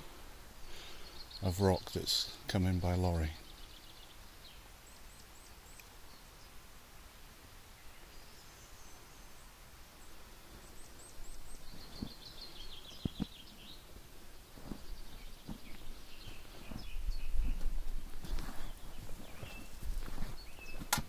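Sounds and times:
songbirds calling: 0:00.0 - 0:21.0
footsteps on stone: 0:14.6 - 0:21.0.

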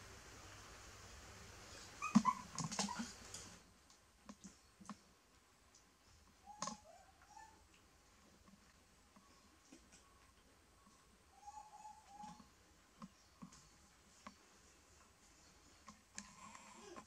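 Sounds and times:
young animal whimpering: 0:02.0 - 0:03.1, 0:06.4 - 0:07.6, 0:11.4 - 0:12.5.

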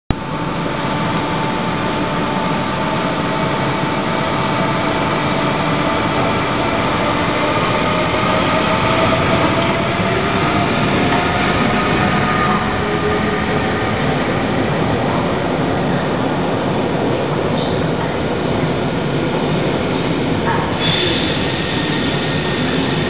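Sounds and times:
locomotive whining tones: 0:00.1 - 0:17.0
electric locomotive drone: 0:00.1 - 0:23.0.

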